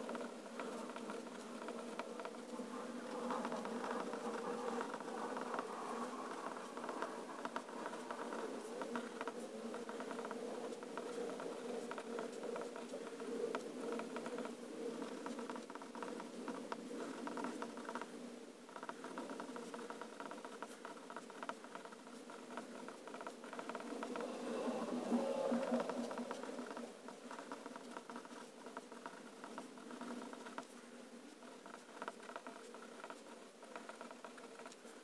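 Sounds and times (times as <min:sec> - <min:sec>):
fountain pen scratching on paper: 0:31.4 - 0:35.0.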